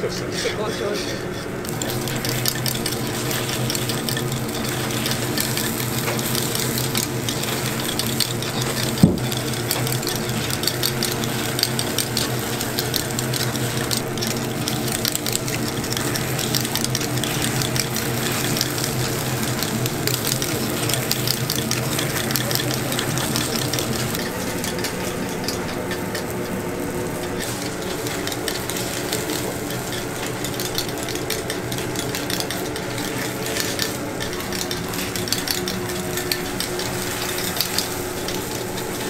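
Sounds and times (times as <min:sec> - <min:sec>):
batter sizzling on griddle: 0:00.7 - 0:39.0.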